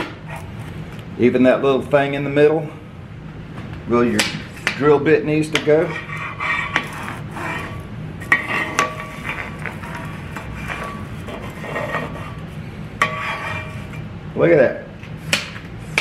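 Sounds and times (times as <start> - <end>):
wand scraping metal table: 5.8 - 14.1.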